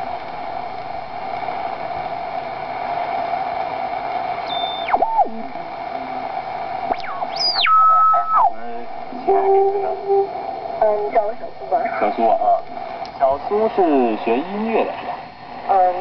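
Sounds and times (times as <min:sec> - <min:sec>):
shortwave radio hiss: 0:00.1 - 0:16.0
falling heterodyne whistle: 0:04.4 - 0:05.2, 0:06.9 - 0:08.5.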